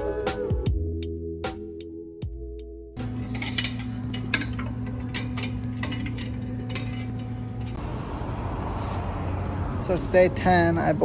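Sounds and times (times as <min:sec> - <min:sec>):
metallic clicks of tools handled: 0:03.0 - 0:07.8
steady low hum: 0:03.0 - 0:08.6.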